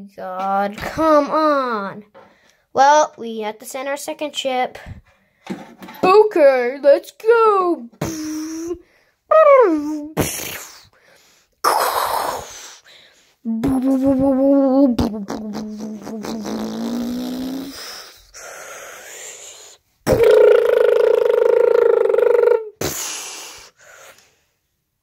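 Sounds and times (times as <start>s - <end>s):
child making mouth sound effects: 8.0s - 11.0s, 11.6s - 12.8s, 13.5s - 23.7s
child humming engine tone: 13.5s - 17.8s, 20.1s - 22.7s.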